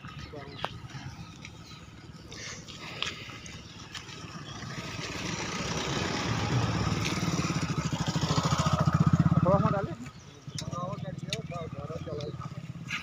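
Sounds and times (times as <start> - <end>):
motorcycle engines running: 0.0 - 13.0.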